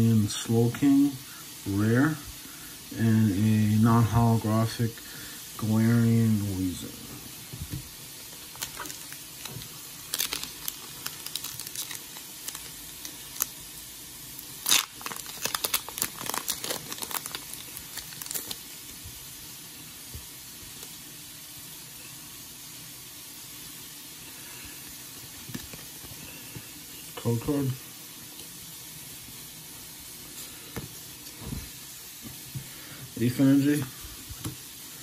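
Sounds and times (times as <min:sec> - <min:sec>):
faint steady hiss: 0:00.0 - 0:35.0
foil wrapper crinkling and tearing: 0:08.3 - 0:19.0.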